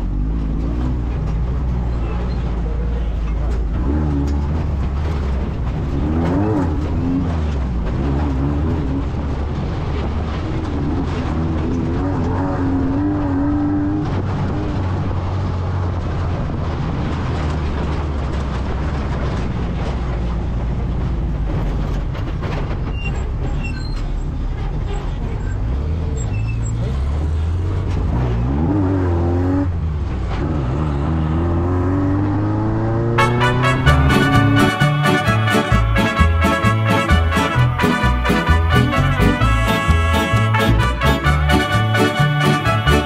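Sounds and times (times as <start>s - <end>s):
vehicle engine and road noise: 0.0s - 43.0s.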